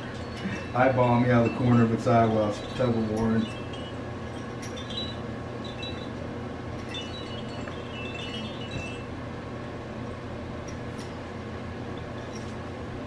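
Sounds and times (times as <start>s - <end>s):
high tinkling chimes: 0.0s - 9.2s
low hum: 0.0s - 13.0s.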